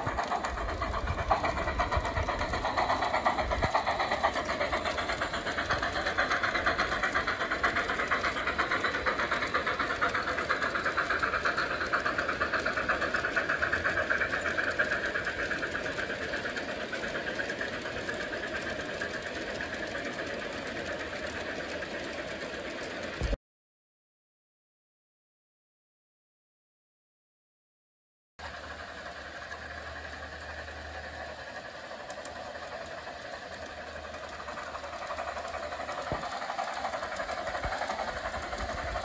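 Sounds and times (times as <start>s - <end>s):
mechanical whir: 0.0s - 20.2s, 28.5s - 39.0s
model train wheels clicking on rails: 0.0s - 23.4s, 28.4s - 39.0s.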